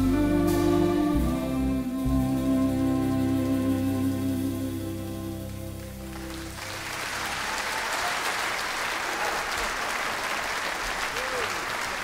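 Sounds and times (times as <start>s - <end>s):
audience applause: 5.8s - 12.0s.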